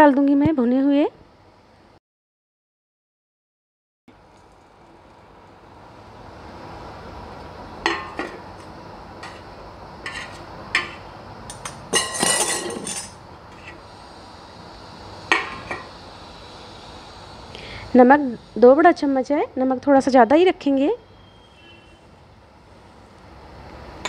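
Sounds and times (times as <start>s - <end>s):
utensils clinking against steel bowl: 10.1s - 13.2s.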